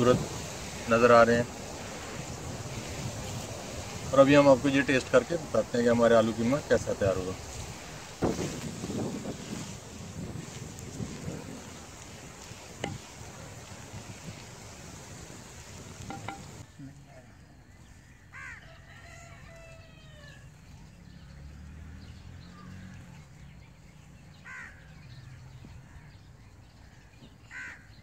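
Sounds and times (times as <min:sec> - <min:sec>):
crow cawing: 0:18.0 - 0:18.7, 0:24.4 - 0:25.0, 0:27.5 - 0:28.0.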